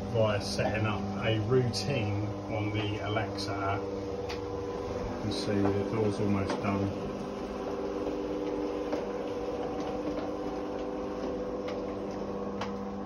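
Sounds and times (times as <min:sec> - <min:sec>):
garage door motor humming: 0:00.0 - 0:13.0.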